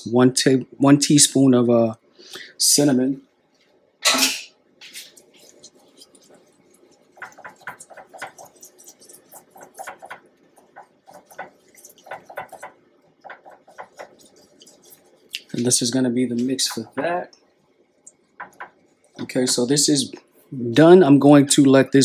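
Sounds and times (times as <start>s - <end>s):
whisk scraping and tapping pan: 4.1s - 19.8s.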